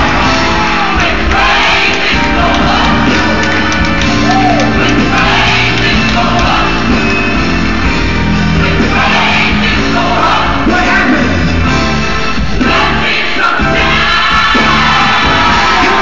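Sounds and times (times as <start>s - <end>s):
song played over sound system: 0.0s - 16.0s
people shouting: 4.2s - 5.7s.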